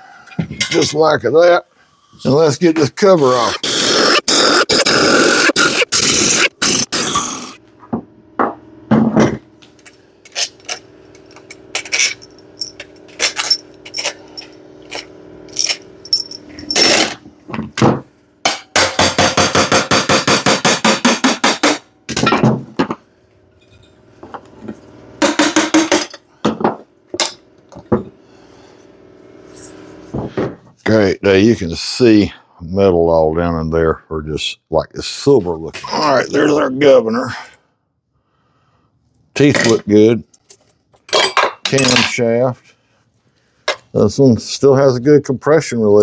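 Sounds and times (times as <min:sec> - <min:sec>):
bolts and tools clinking on metal: 0:10.3 - 0:17.2, 0:39.4 - 0:42.3
air impact wrench rattling: 0:11.4 - 0:17.2.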